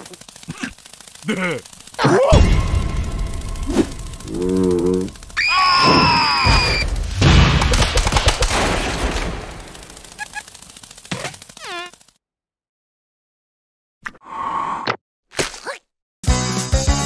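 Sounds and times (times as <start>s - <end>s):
low grunt: 0.5s - 2.5s
high gliding squeal: 3.4s - 6.9s.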